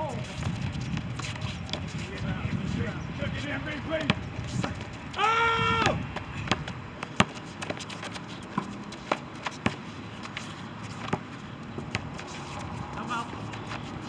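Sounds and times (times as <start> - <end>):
players' footsteps: 0.0 - 14.0
basketball bouncing on concrete: 3.9 - 5.0, 5.7 - 7.9, 8.5 - 9.8, 11.0 - 12.1.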